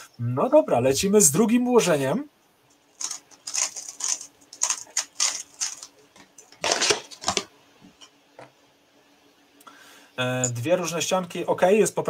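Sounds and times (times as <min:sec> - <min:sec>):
plastic clatter: 0:03.0 - 0:08.5.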